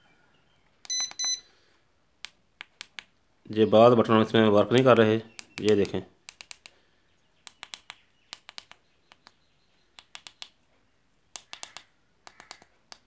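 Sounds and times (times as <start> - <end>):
keypad buttons clicking: 0.8 - 1.4, 7.4 - 10.6, 11.3 - 13.0.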